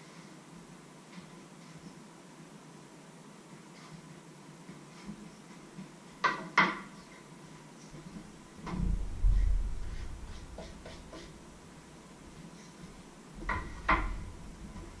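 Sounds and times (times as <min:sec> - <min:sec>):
heavy low thud: 0:08.6 - 0:10.8.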